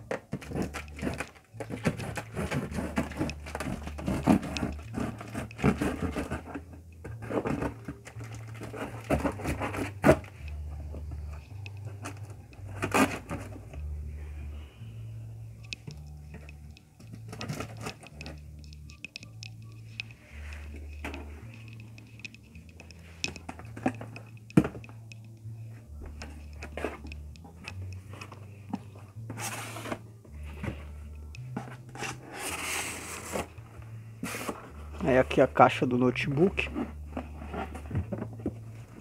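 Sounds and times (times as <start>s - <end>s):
taps and scrapes on cardboard: 0.1s - 10.4s.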